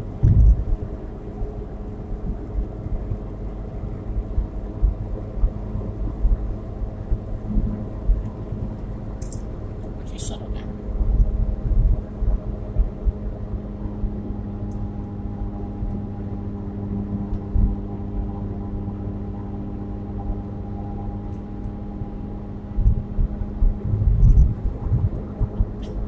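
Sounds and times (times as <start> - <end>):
low bumps: 0.0 - 0.8, 22.8 - 26.0
car engine drone: 0.0 - 26.0.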